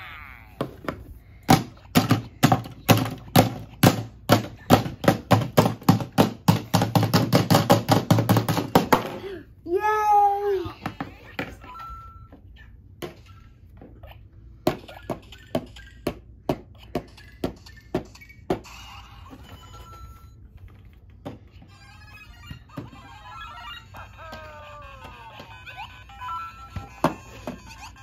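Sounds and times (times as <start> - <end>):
sharp plastic knocks: 0.6 - 9.2.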